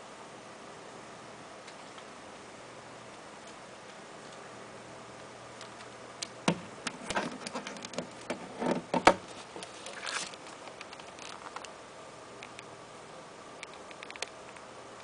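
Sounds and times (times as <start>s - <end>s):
air conditioner hum: 0.0s - 15.0s
handling clicks and rustling: 6.9s - 11.8s.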